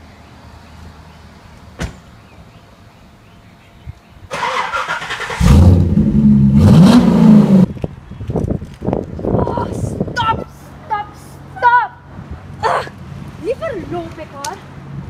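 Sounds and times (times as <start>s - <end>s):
car door shutting: 1.8s - 2.1s
car engine starting and revving: 4.3s - 7.8s.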